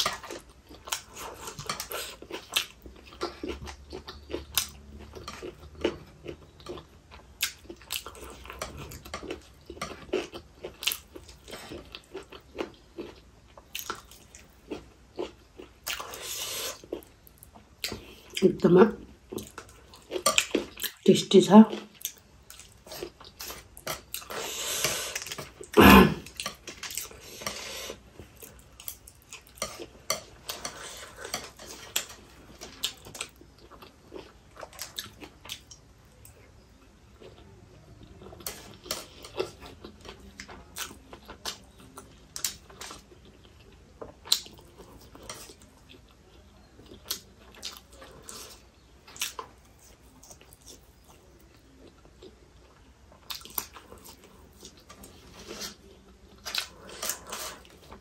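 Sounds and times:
chewing and wet mouth noises: 0.0 - 21.1, 21.7 - 58.0.

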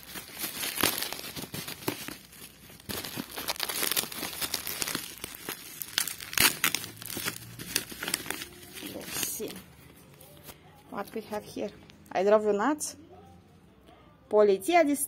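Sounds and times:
sharp crackles: 0.0 - 9.5
bubble wrap and paper crinkling: 0.0 - 11.8.

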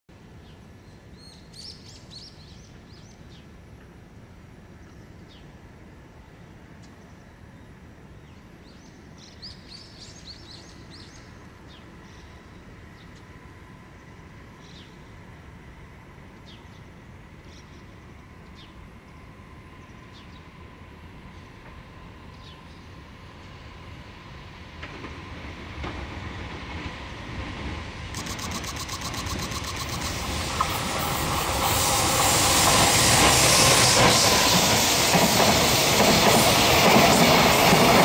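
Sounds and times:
distant freight train tone: 11.0 - 38.0
small birds chirping: 28.2 - 31.4.

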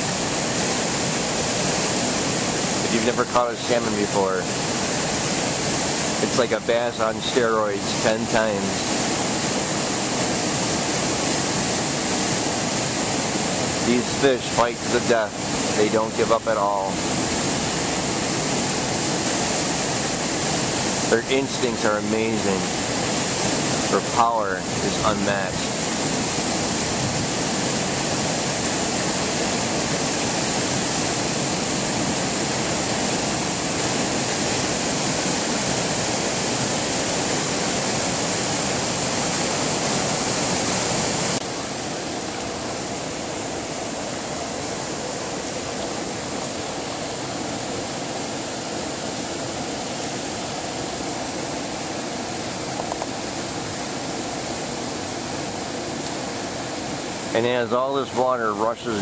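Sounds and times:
water rushing over dam: 0.0 - 59.0.

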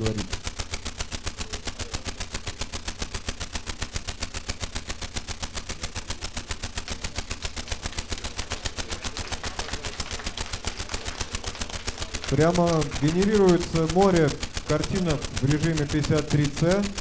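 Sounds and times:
fast rattle of noise pulses: 0.0 - 17.0.

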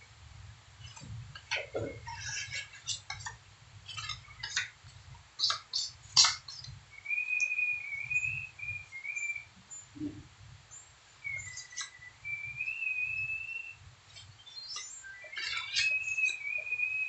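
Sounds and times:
high wavering whistled tune: 6.9 - 9.5, 11.2 - 13.8, 14.5 - 17.0.

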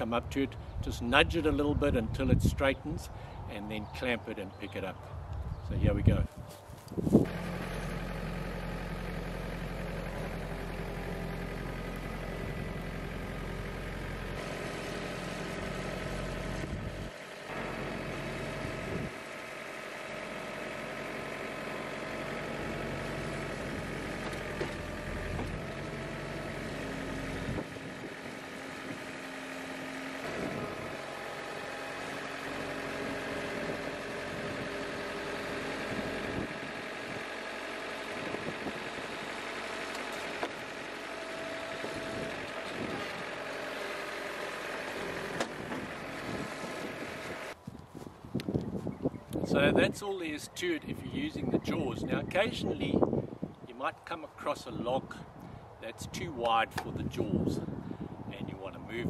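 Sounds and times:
tractor engine running: 6.6 - 59.0
loader hydraulics working: 7.1 - 47.6.

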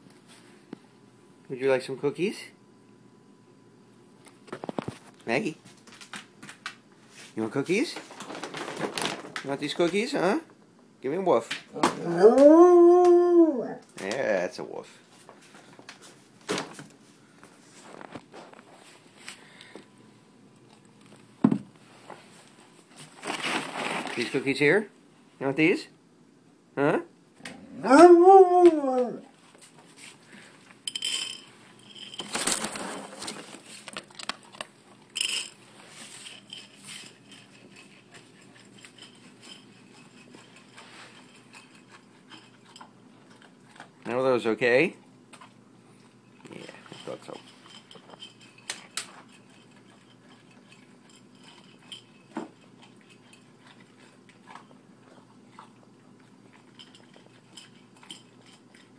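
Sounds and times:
dog crunching dry kibble: 7.9 - 10.0, 23.1 - 24.5, 30.9 - 58.9
kibble clinking against metal bowl: 30.9 - 32.5, 35.1 - 35.6, 46.5 - 53.9, 56.5 - 58.9.

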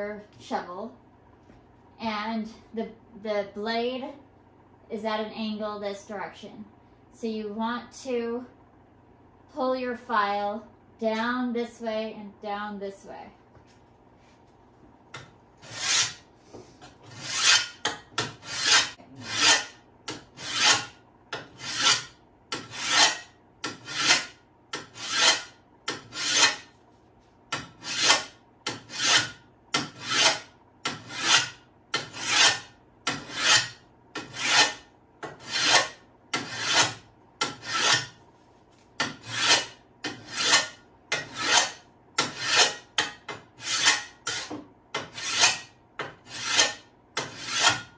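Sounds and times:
hand file rasping on steel: 15.6 - 16.2, 17.0 - 26.7, 27.5 - 38.2, 39.0 - 47.9.

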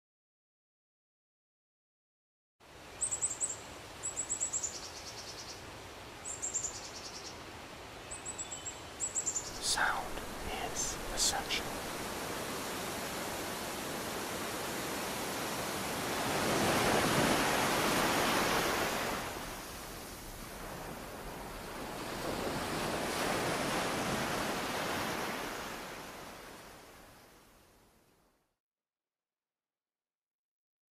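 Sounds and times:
waves washing onto beach: 9.5 - 27.8.

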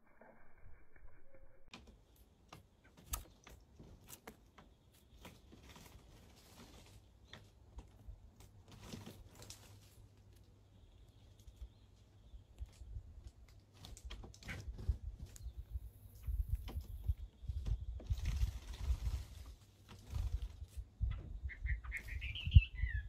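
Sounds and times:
low hum: 0.0 - 1.8.

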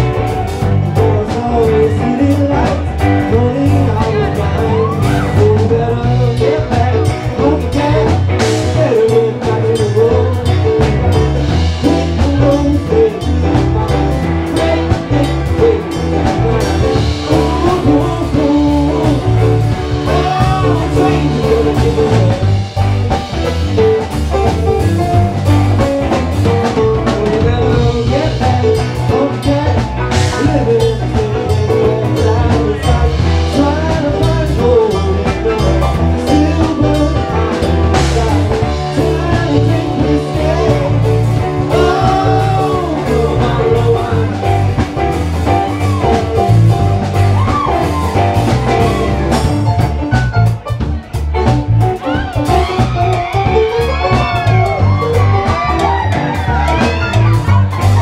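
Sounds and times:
drum kit beat: 0.0 - 58.0
electric guitar: 0.0 - 58.0.

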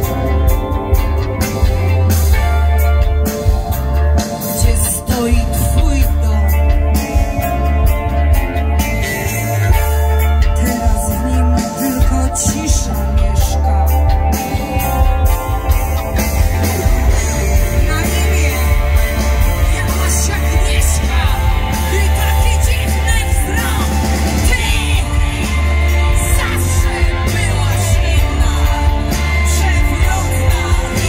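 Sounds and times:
heavy bass line: 0.0 - 31.0
live rock band playing: 0.0 - 31.0
woman singing: 4.5 - 7.4, 10.2 - 14.6, 17.1 - 31.0.

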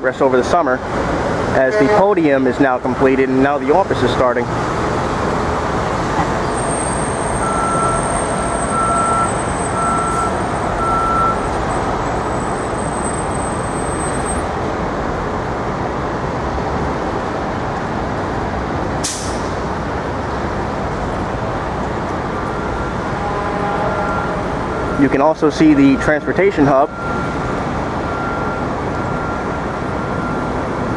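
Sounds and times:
city street traffic: 0.0 - 30.9
short beeps: 7.4 - 8.1, 8.7 - 11.4
sharp hiss: 19.0 - 19.6.

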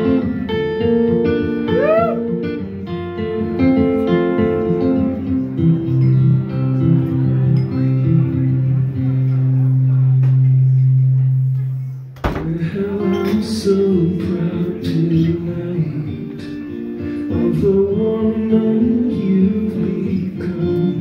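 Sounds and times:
man singing: 12.2 - 21.0.

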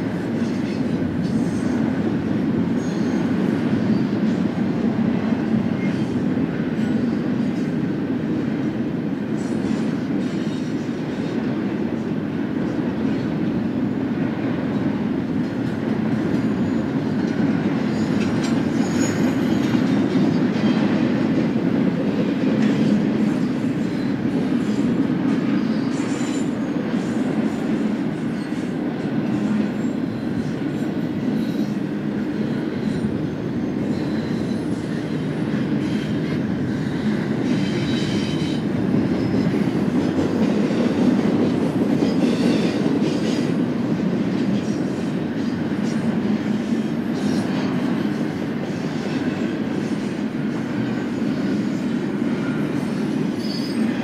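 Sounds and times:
freight train rumbling past: 0.0 - 54.0
high wheel squeals: 17.9 - 19.8, 52.4 - 54.0.

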